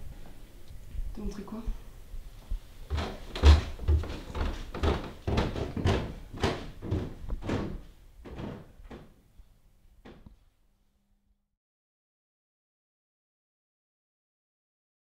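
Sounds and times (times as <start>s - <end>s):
fist knocking on door: 2.9s - 9.2s.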